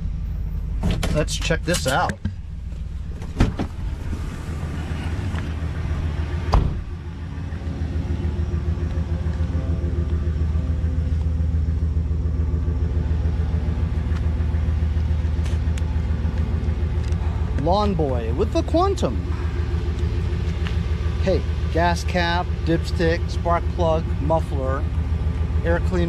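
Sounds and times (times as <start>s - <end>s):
van engine idling: 0.0s - 26.0s
door slamming shut: 3.2s - 3.8s, 6.5s - 6.9s.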